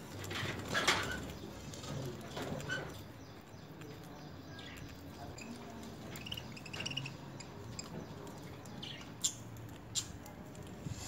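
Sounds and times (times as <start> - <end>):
parakeets chirping: 4.3 - 10.2.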